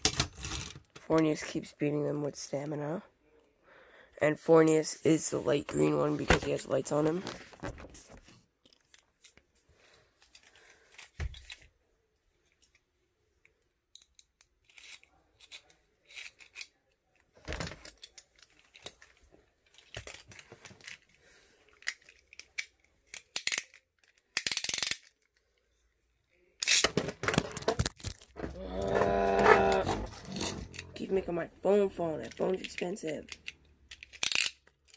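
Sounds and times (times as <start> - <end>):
phone falling and clattering: 26.9 - 28.5.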